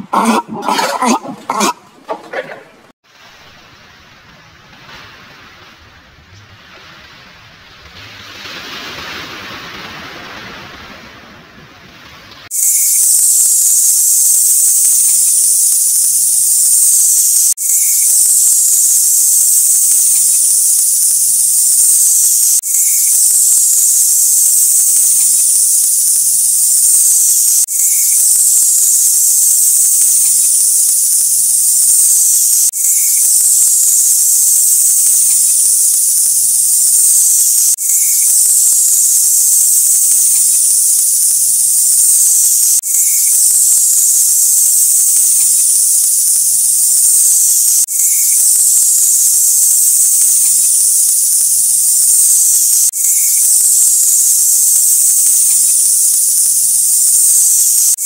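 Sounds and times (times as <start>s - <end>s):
snake hissing: 12.5s - 58.0s.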